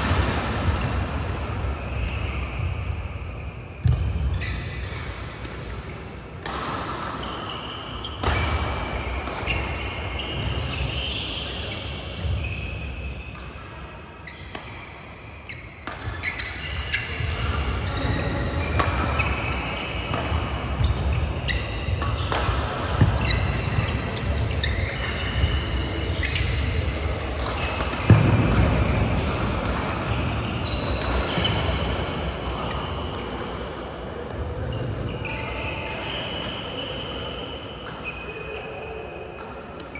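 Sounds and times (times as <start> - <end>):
shoes squeaking on court mats: 0.6 - 5.0, 7.1 - 13.4, 14.2 - 33.4, 34.6 - 38.6
badminton rackets striking shuttlecocks: 4.8 - 9.8, 15.8 - 33.5.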